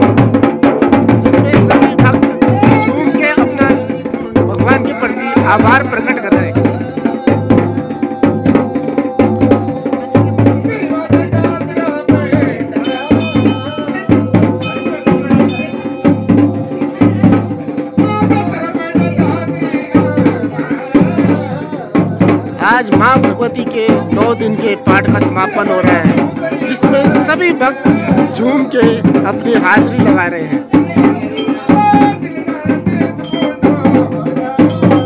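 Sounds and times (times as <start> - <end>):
folk drums beating: 0.0 - 35.0
bright ringing: 12.8 - 14.0, 14.6 - 16.5.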